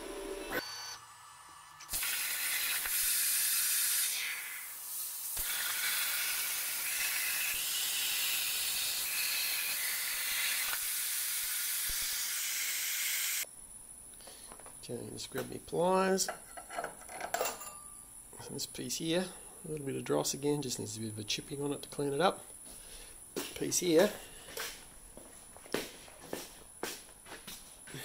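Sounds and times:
plasma cutter hissing: 0:01.8 - 0:13.4.

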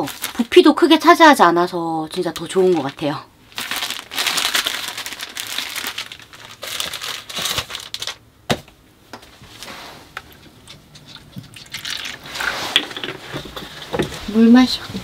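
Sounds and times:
plastic wrapping crinkling: 0:00.0 - 0:01.0, 0:02.1 - 0:08.2, 0:10.2 - 0:12.6.

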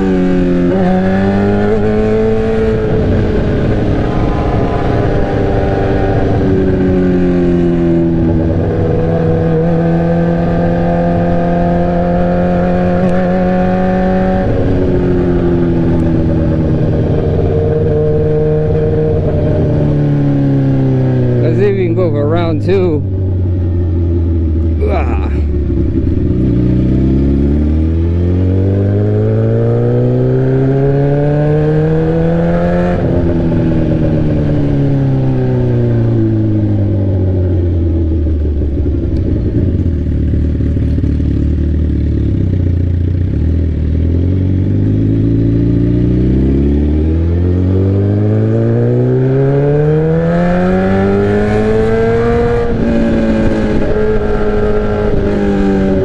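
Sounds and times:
sport bike engine revving: 0:00.0 - 0:56.0.

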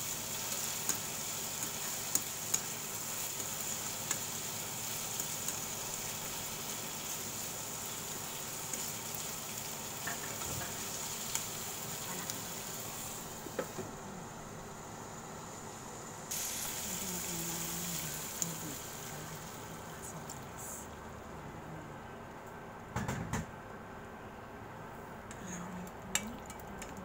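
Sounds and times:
vegetables sizzling in a frying pan: 0:00.0 - 0:21.4
chopsticks clicking against pan: 0:00.8 - 0:02.7.

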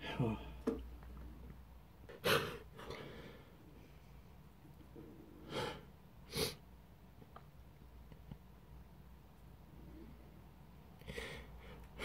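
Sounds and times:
man sniffing: 0:02.1 - 0:03.2, 0:05.4 - 0:06.6.

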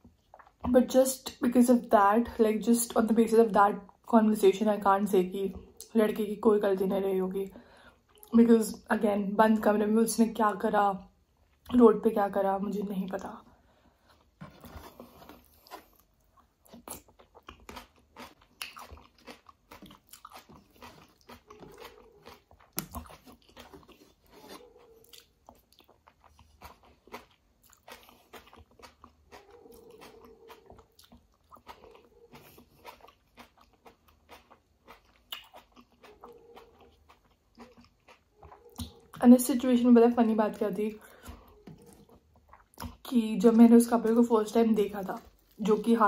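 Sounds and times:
wet mouth chewing clicks: 0:14.9 - 0:39.2, 0:41.1 - 0:43.1.

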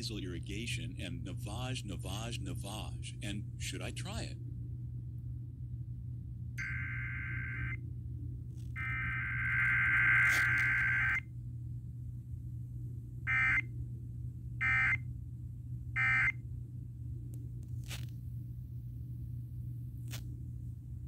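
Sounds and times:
low steady hum: 0:00.0 - 0:21.0
short data tone bursts: 0:08.8 - 0:11.2
warbling digital data tones: 0:08.8 - 0:11.2.

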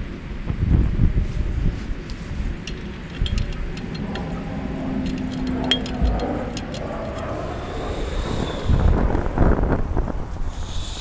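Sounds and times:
wind rumbling on microphone: 0:00.0 - 0:11.0
light metallic clicks: 0:02.0 - 0:07.3.

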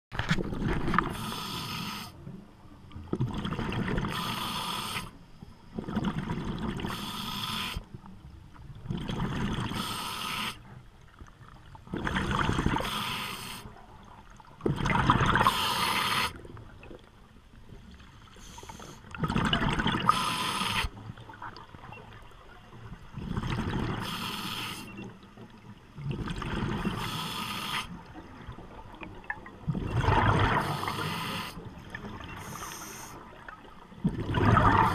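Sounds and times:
diver exhaling bubbles: 0:29.7 - 0:32.6, 0:34.0 - 0:34.9.

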